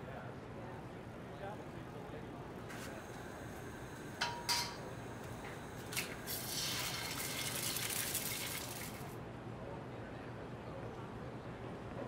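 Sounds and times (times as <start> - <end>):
steady hiss: 1.5 - 9.2
crockery clinking: 4.2 - 4.9.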